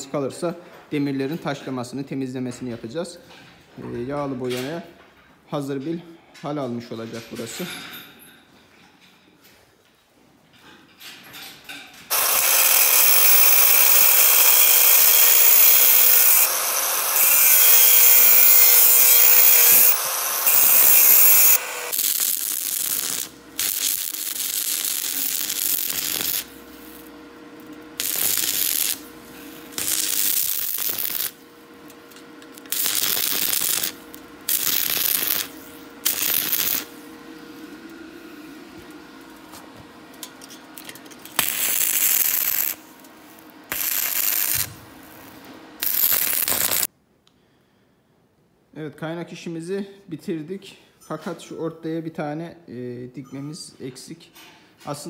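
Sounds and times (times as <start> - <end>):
angle grinder grinding steel: 12.1 - 26.5, 32.6 - 36.9, 45.8 - 46.9
arc welding crackling hiss: 12.1 - 27.2, 28.0 - 31.4, 32.5 - 37.1, 41.3 - 46.9.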